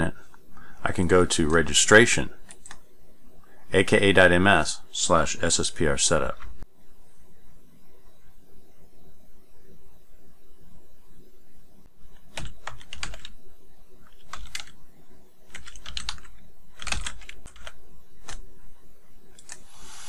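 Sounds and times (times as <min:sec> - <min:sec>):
typing on a keyboard: 0:12.3 - 0:13.3, 0:14.2 - 0:14.7, 0:15.5 - 0:18.4.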